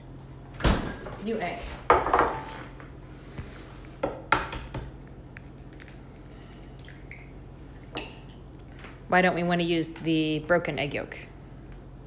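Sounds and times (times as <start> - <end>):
egg cracking: 3.9 - 7.6.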